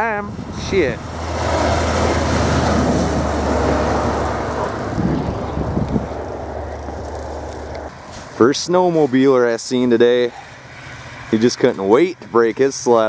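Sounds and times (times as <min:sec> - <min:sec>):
steady low rumble: 0:00.2 - 0:07.9
vehicle passing on snowy road: 0:01.0 - 0:13.0.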